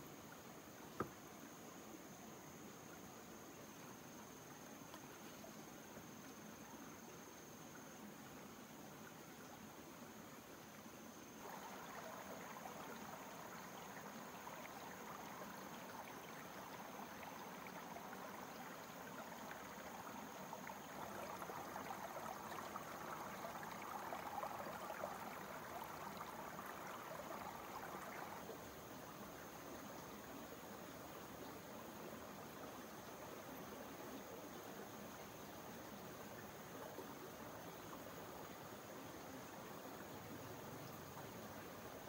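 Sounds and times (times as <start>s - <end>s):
stream rushing over stones: 11.4s - 28.5s.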